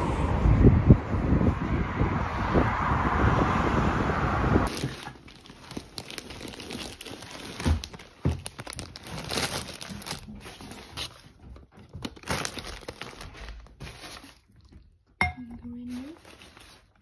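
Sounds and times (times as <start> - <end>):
plastic packaging crinkling: 4.7 - 14.7, 15.7 - 17.0.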